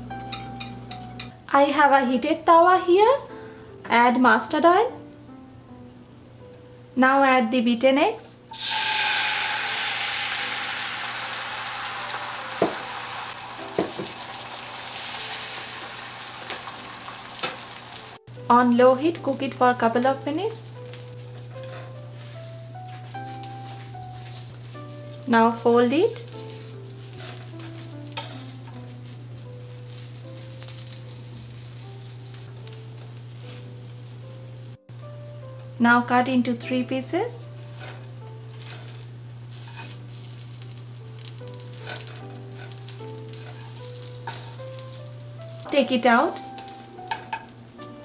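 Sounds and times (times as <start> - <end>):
eggs sizzling in oil: 8.5 - 48.0
spatula scraping pan: 26.2 - 29.2, 37.7 - 40.7, 41.3 - 44.9.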